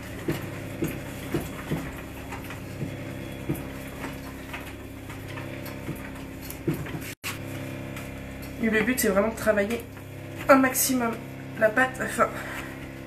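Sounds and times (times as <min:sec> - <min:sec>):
hands kneading dough on table: 0:00.0 - 0:08.0.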